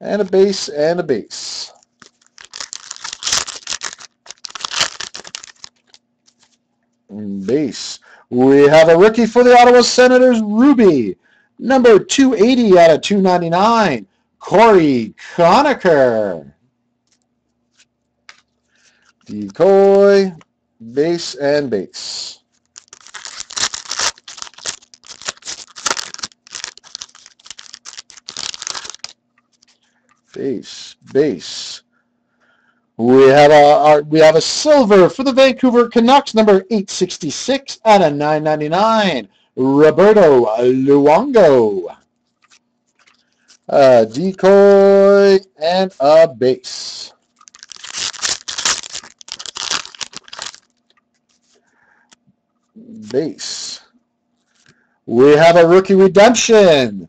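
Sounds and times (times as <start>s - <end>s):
plastic wrapper crinkling: 1.8s - 6.6s, 22.5s - 30.4s, 42.2s - 43.7s, 47.2s - 51.6s.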